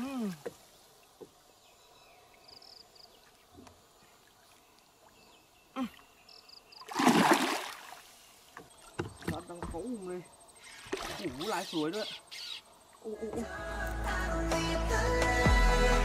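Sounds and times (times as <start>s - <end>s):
fish splashing at surface: 6.9s - 8.0s.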